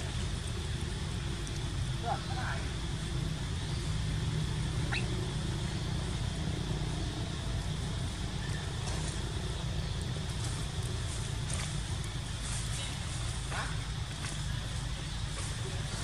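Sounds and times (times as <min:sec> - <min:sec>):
low outdoor rumble: 0:00.0 - 0:16.0
short rising chirp: 0:04.9 - 0:05.1.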